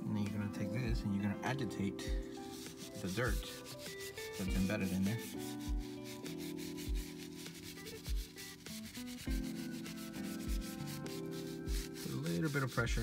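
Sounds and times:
brush scrubbing leather: 2.2s - 13.0s.

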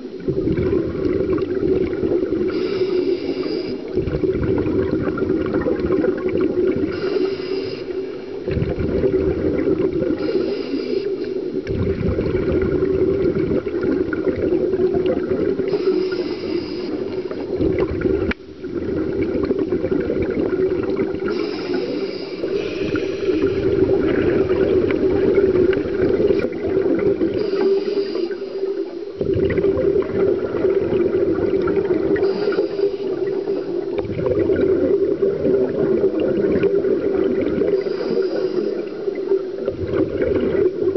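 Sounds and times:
exhaled bubbles gurgling: 0.0s - 40.9s
regulator inhale hiss: 2.4s - 4.0s, 6.9s - 8.5s, 10.0s - 11.7s, 15.6s - 17.6s, 21.2s - 23.8s, 27.3s - 29.2s, 31.7s - 34.0s, 37.6s - 39.5s.

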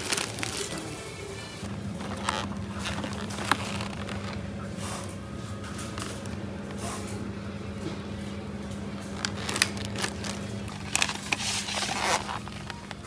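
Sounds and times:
plastic tray crinkling: 0.0s - 1.0s, 1.9s - 4.4s, 9.0s - 13.0s
steady low hum: 0.0s - 13.0s.

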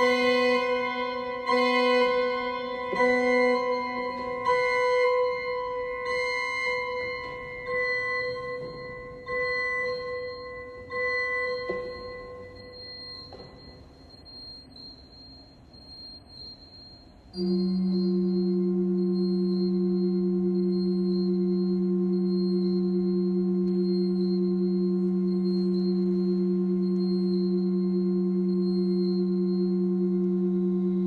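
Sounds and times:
pipe organ repeating high figure: 0.0s - 12.4s.

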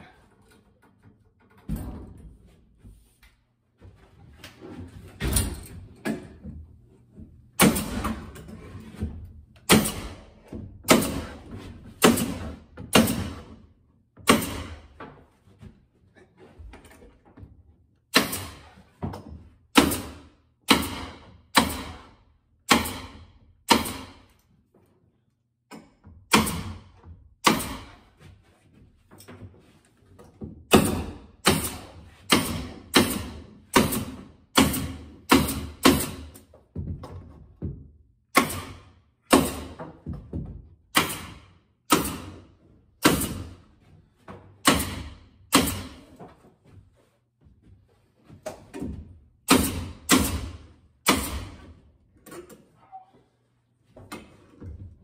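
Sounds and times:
pneumatic stapler firing: 41.0s - 42.3s, 49.5s - 51.6s.

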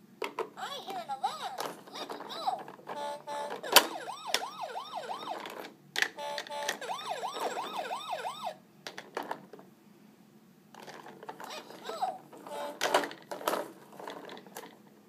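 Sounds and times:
electronic toy siren wailing: 3.0s - 5.6s, 6.2s - 8.6s, 11.5s - 13.0s.

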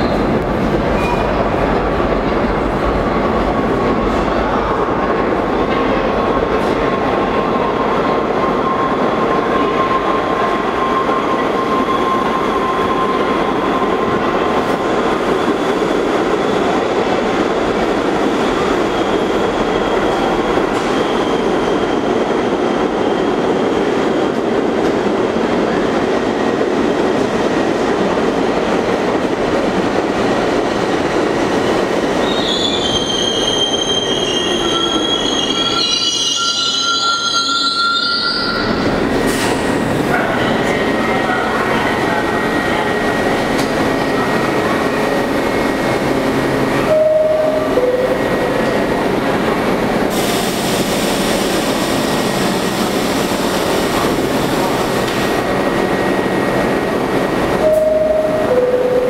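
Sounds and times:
subway train rumbling on rails: 0.0s - 59.0s
train brakes squealing: 7.4s - 15.7s, 17.9s - 23.9s, 31.7s - 45.6s.

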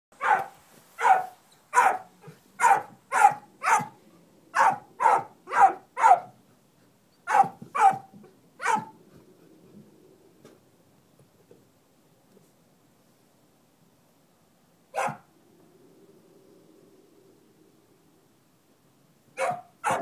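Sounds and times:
dog barking: 0.2s - 6.4s, 7.3s - 9.0s, 14.9s - 15.3s, 19.4s - 20.0s.

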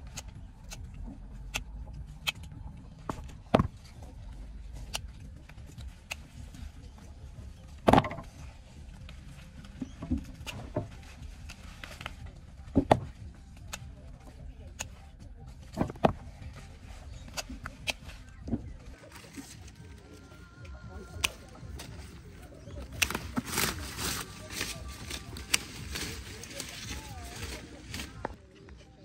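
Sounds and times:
secateurs snipping: 0.0s - 2.6s, 4.7s - 6.9s, 15.6s - 18.4s, 21.0s - 28.4s.

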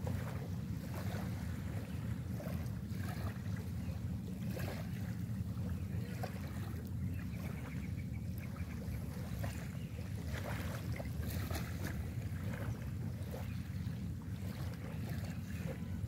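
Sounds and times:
small waves lapping: 0.0s - 16.0s.

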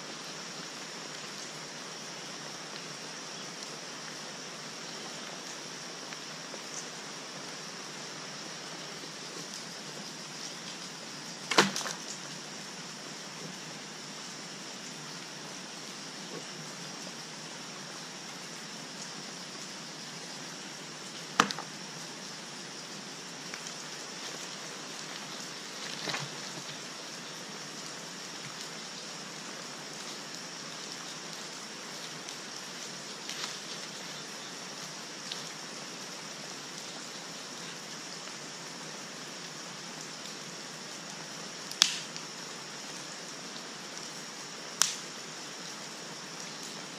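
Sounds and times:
rushing background hiss: 0.0s - 46.9s
sticks dropped on ground: 11.5s - 12.2s, 21.4s - 21.8s.

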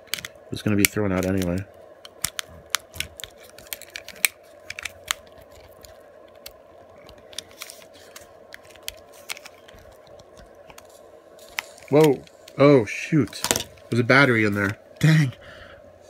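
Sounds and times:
plastic snapping: 0.0s - 10.8s.

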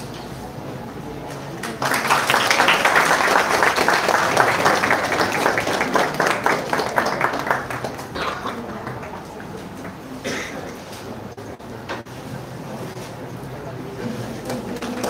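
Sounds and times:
audience applauding: 1.6s - 10.0s.

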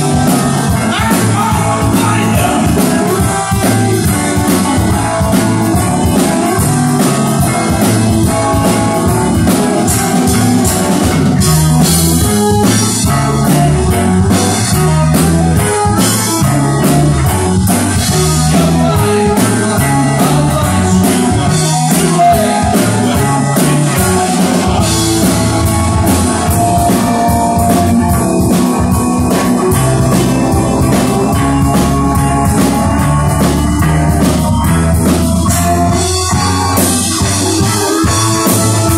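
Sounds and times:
rock band playing live: 0.0s - 38.9s.

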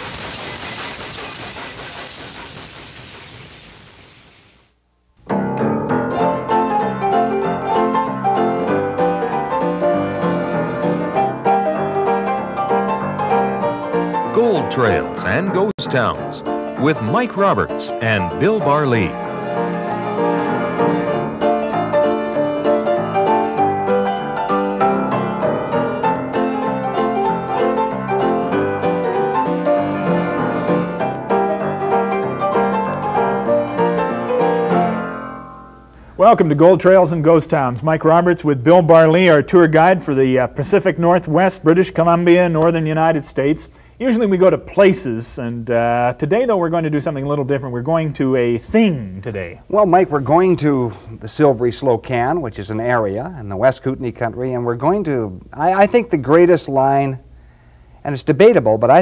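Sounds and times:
steam train hissing: 0.0s - 4.7s
piano music: 5.3s - 40.9s.

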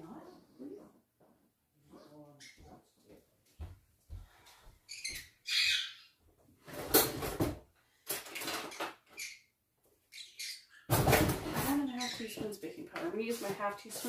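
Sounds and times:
parrot chirping and squawking: 4.9s - 6.2s, 8.7s - 10.9s.

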